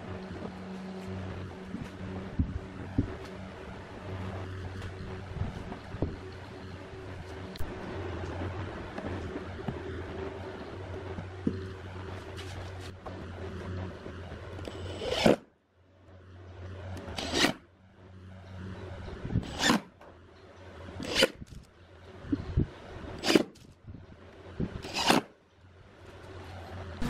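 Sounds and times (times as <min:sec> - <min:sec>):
impact driver driving screws: 0:24.8 - 0:25.3.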